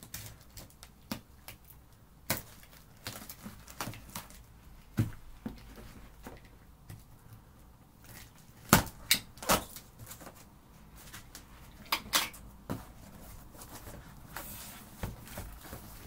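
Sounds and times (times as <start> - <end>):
cardboard flaps rustling: 12.6 - 16.0.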